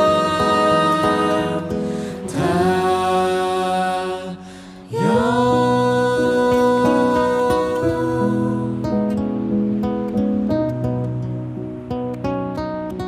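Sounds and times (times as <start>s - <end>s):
group of people singing: 0.0s - 8.9s
acoustic guitar: 0.0s - 13.0s.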